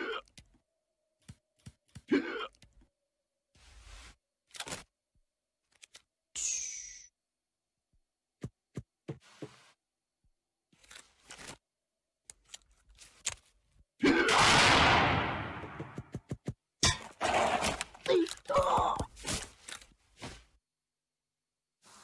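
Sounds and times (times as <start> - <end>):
rifle shot with echo: 14.3 - 15.9.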